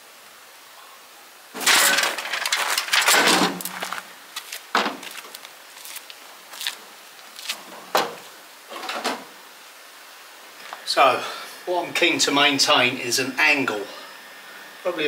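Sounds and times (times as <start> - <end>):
scraping clattering rush: 1.6 - 4.0.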